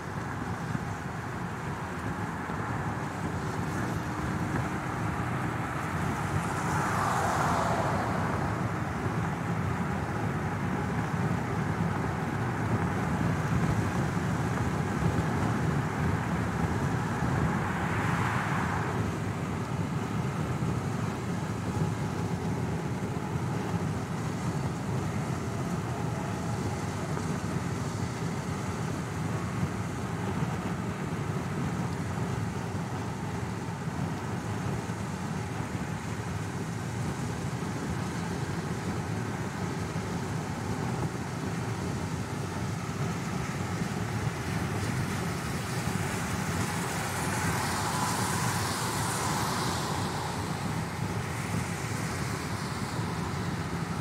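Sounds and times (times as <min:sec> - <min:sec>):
car road noise rumble: 0:00.0 - 0:54.0
higher rushing sound: 0:45.9 - 0:53.8.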